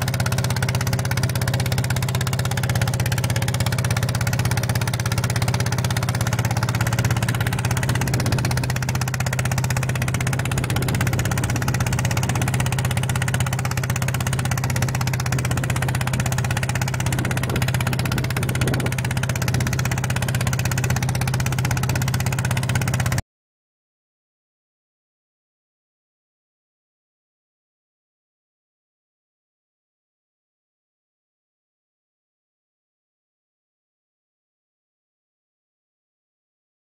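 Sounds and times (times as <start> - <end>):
tractor engine running under load: 0.0 - 23.2.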